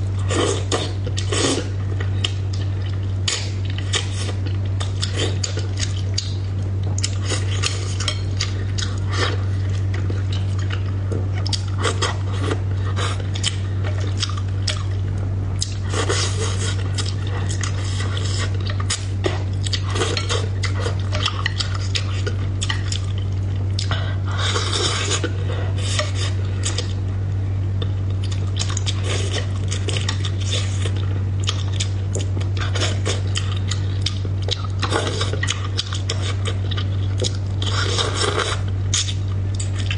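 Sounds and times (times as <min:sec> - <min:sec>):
steady low hum: 0:00.0 - 0:39.9
chewing and mouth sounds: 0:00.2 - 0:27.0, 0:27.7 - 0:39.9.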